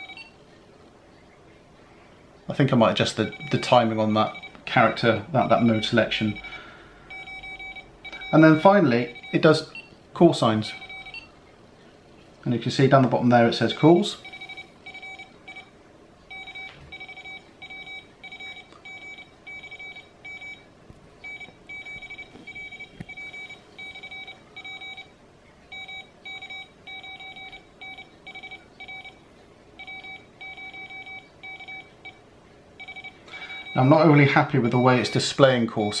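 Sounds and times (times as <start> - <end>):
morse code beeps: 0.0 - 0.4, 3.2 - 4.9, 5.5 - 9.9, 10.6 - 11.3, 13.7 - 15.7, 16.3 - 25.1, 25.7 - 29.2, 29.8 - 32.2, 32.8 - 34.1.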